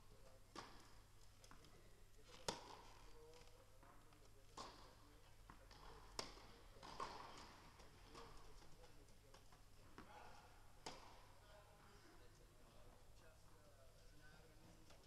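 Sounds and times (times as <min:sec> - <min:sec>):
tennis ball impacts echoing: 0:02.4 - 0:03.0, 0:04.6 - 0:08.4, 0:09.3 - 0:11.4.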